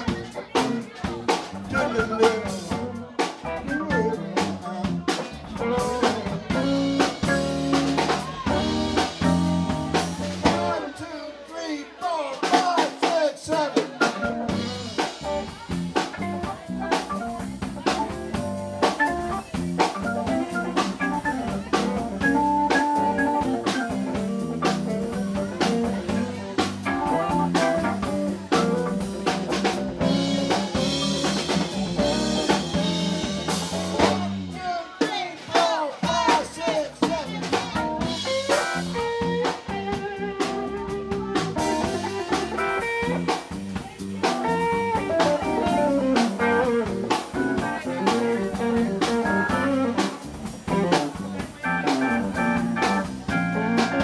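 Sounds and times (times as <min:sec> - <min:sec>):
electric guitar: 0:00.0 - 0:10.8, 0:14.0 - 0:34.5, 0:37.5 - 0:54.0
bass: 0:00.0 - 0:11.0, 0:13.9 - 0:54.0
drums: 0:00.0 - 0:54.0
organ: 0:05.6 - 0:10.8, 0:16.2 - 0:34.3, 0:51.6 - 0:54.0.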